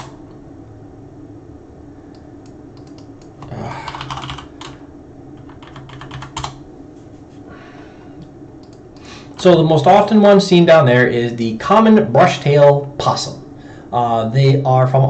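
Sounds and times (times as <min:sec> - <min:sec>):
low steady hum: 0:00.0 - 0:15.0
typing on computer keyboard: 0:02.8 - 0:04.8, 0:05.4 - 0:06.6.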